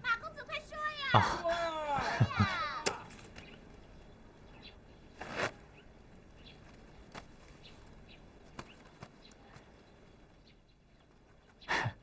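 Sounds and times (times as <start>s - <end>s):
rustle: 2.5s - 11.7s.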